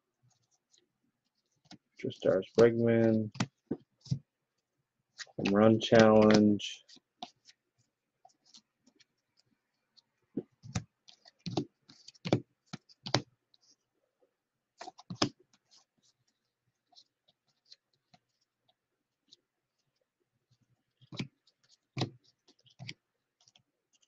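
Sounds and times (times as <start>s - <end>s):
cards clicking and snapping: 5.2s - 7.6s.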